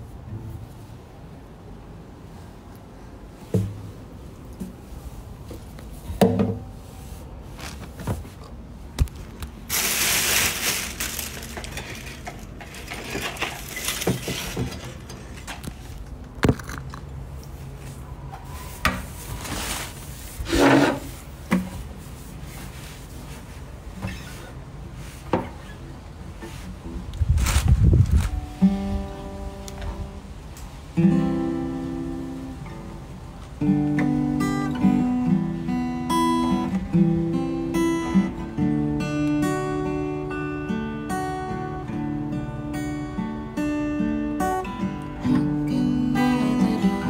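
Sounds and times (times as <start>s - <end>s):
rustle: 0.0s - 47.0s.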